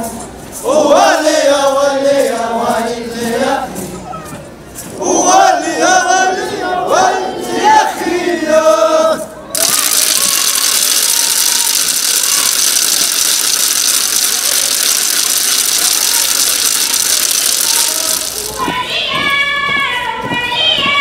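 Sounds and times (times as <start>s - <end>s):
loud steady hiss: 9.6s - 18.6s.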